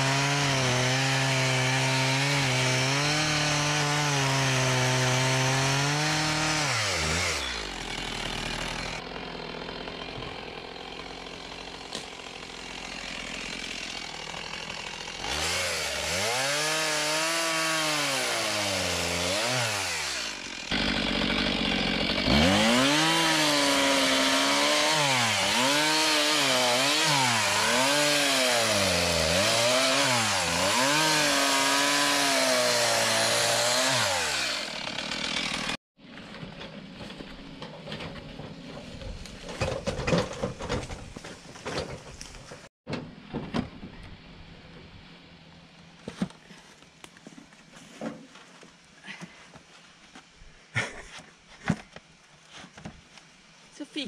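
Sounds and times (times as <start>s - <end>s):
chainsaw cutting logs: 0.0s - 37.6s.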